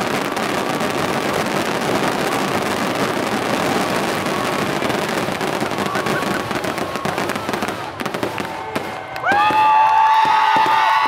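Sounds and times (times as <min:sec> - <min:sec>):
fireworks crackling and popping: 0:00.0 - 0:11.0.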